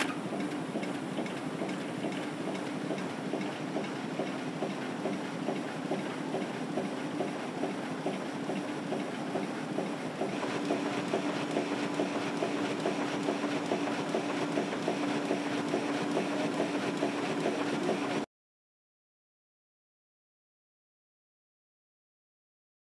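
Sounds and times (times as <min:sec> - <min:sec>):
machine rapid clatter: 0:00.0 - 0:18.3.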